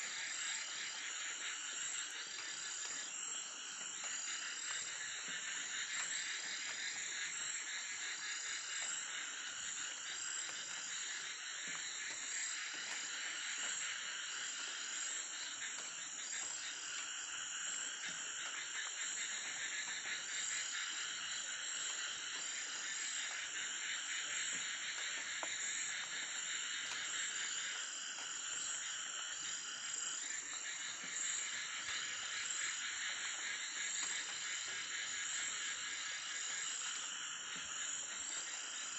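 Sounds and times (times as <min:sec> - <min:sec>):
frogs calling: 0:00.0 - 0:38.9.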